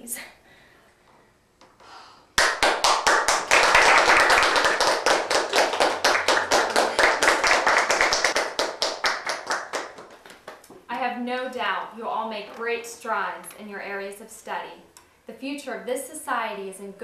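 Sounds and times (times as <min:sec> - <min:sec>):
small group clapping: 0:02.3 - 0:10.8.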